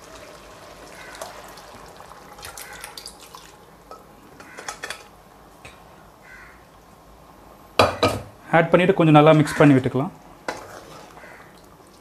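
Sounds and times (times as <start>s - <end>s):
liquid pouring and dripping: 0.0s - 3.7s.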